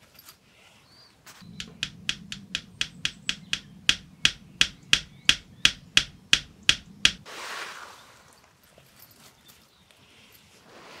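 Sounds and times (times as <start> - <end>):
metal nails clinking: 1.6 - 7.2.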